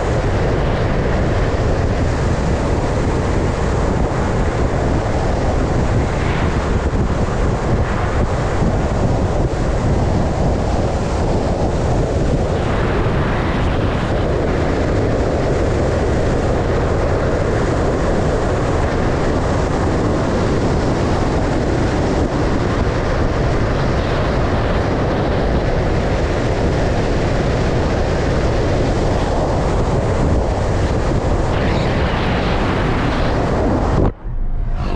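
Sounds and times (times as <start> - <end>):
wind rushing on microphone: 0.0 - 34.9
vehicle road noise: 31.0 - 34.9.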